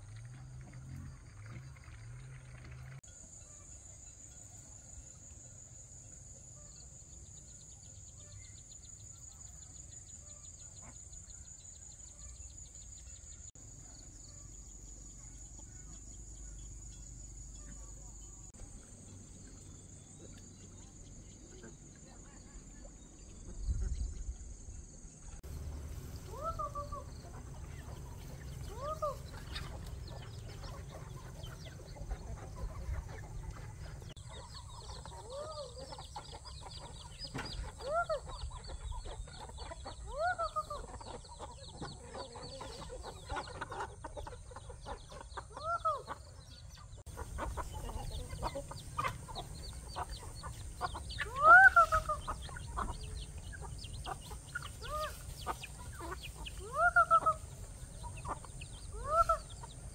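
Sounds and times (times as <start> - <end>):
chickens clucking: 25.4 - 59.9.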